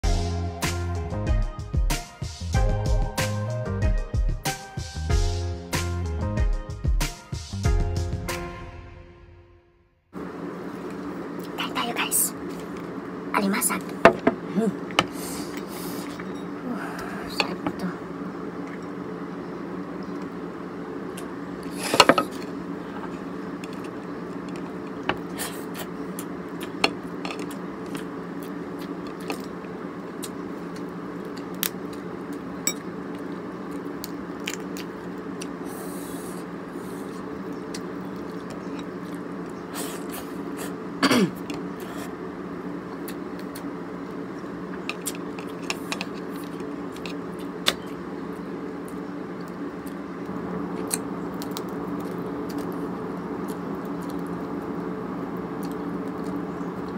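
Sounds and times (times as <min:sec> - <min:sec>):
steady low hum: 0:00.0 - 0:09.2, 0:10.1 - 0:56.9.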